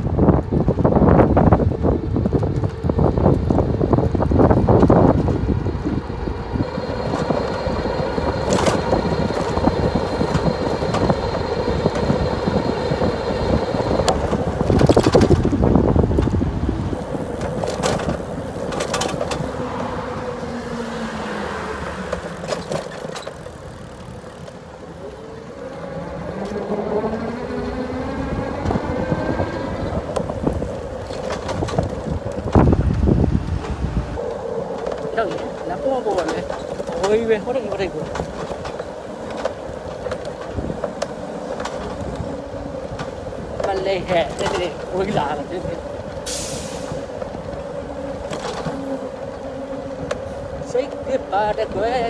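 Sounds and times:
street traffic rumble: 0.0s - 52.0s
wind buffeting microphone: 0.0s - 52.0s.

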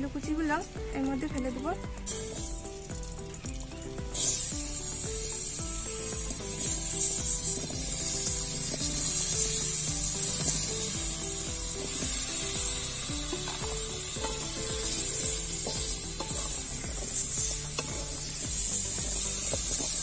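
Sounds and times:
background music: 0.0s - 20.0s
oil sizzling: 1.8s - 20.0s.

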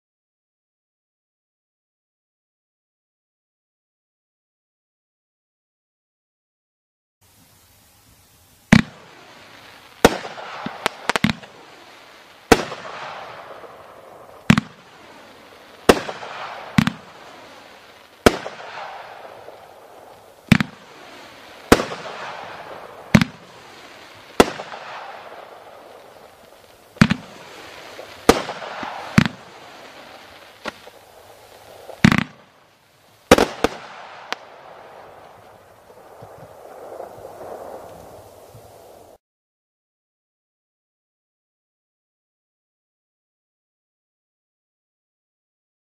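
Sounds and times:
firework hiss: 7.2s - 39.2s
firework cake bangs: 8.7s - 32.6s, 33.3s - 38.3s.

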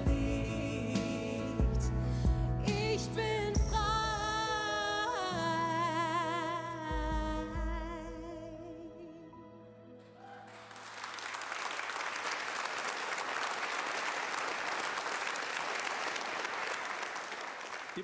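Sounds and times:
audience applauding: 10.2s - 18.0s.

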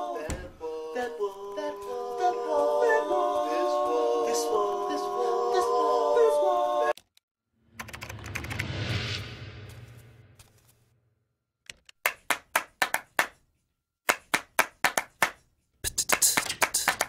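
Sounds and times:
male a cappella harmony singing: 0.0s - 7.0s
low hum: 7.6s - 11.0s.

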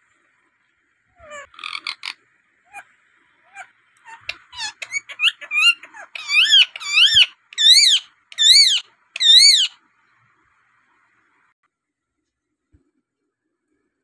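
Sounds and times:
parakeet chirping and screeching: 1.2s - 9.8s.

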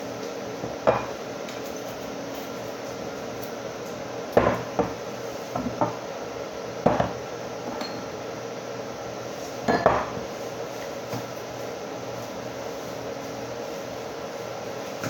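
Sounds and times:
glass jars clinking on countertop: 9.7s - 10.2s.

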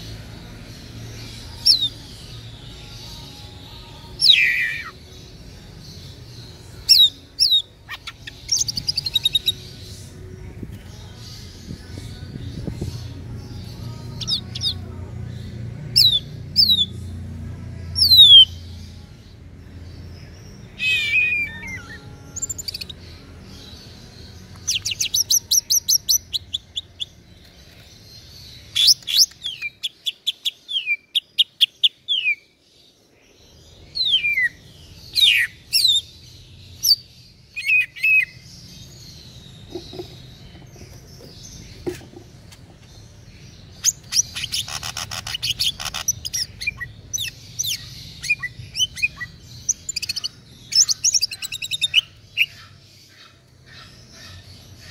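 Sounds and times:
bird singing whistles and trills: 20.6s - 23.0s, 33.9s - 38.5s, 43.8s - 52.8s.

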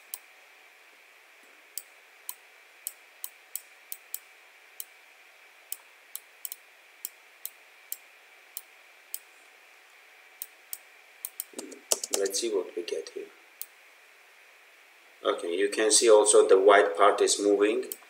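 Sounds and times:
faint steady hiss: 0.0s - 18.0s
mouse buttons clicking: 11.2s - 12.3s.

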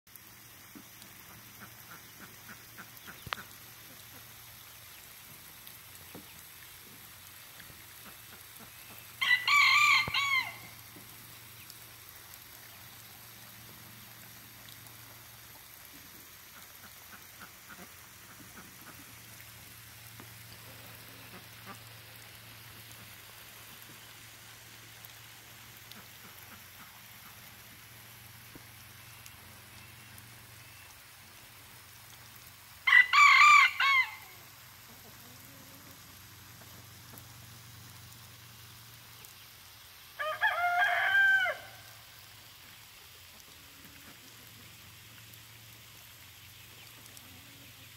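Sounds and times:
rooster crowing: 9.2s - 10.8s, 32.8s - 34.4s, 40.2s - 42.0s.

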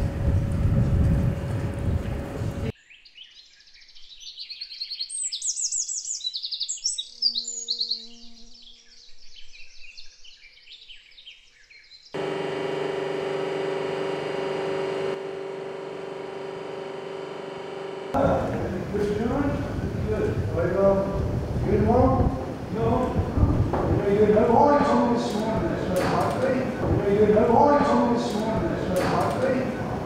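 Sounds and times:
steady mechanical hum: 0.0s - 2.7s, 12.2s - 30.0s
songbird chirping and trilling: 2.7s - 12.2s.

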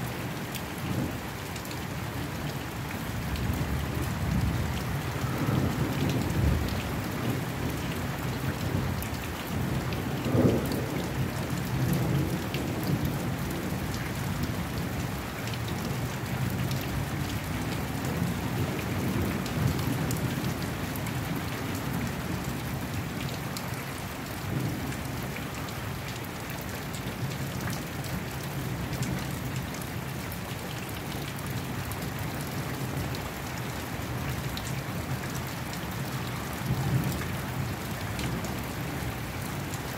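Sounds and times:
rain falling steadily: 0.0s - 39.9s
low thunder rumbling: 3.6s - 7.8s.

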